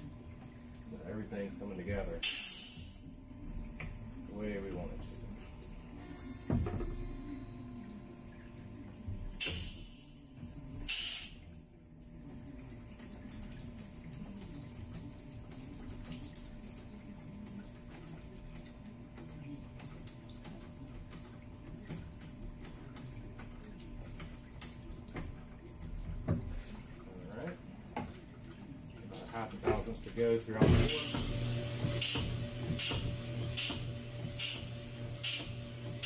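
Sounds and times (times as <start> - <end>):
honing machine humming: 5.9 - 8.6.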